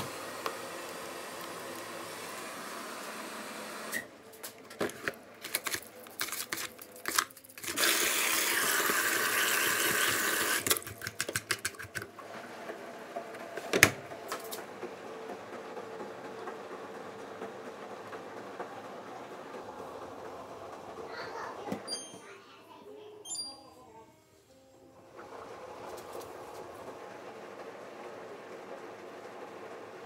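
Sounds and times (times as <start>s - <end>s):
powder pouring hiss: 0.0s - 3.9s, 5.5s - 10.7s
washing machine running: 0.0s - 23.1s, 24.7s - 30.0s
scoop scraping in powder tub: 5.0s - 8.0s.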